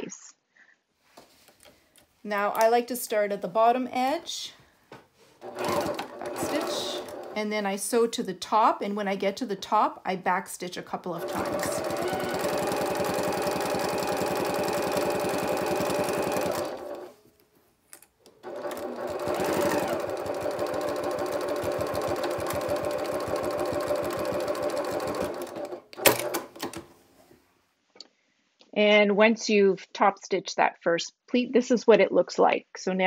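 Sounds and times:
sewing machine stitching: 0:05.4 - 0:07.9, 0:11.1 - 0:17.1, 0:18.3 - 0:26.9.

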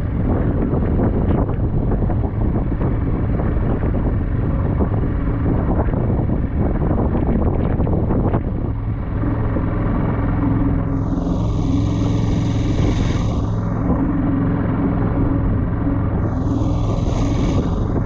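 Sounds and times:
wind buffeting microphone: 0:00.0 - 0:18.0
gong-like swell: 0:10.3 - 0:18.0
water rushing: 0:10.8 - 0:18.0.

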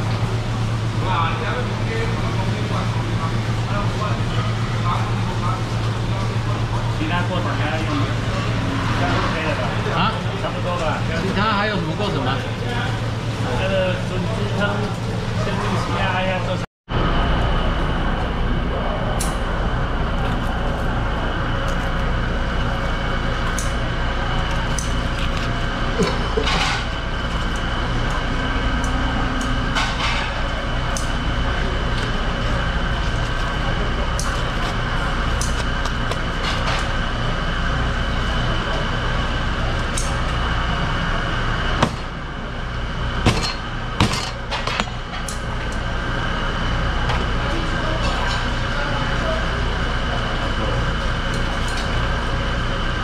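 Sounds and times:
droning kitchen background noise: 0:00.0 - 0:53.0.

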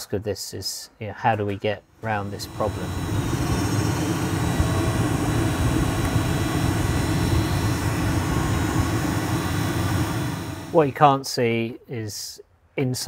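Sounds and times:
blower fan rushing air: 0:02.0 - 0:11.1
faint motor whine: 0:02.0 - 0:11.1.

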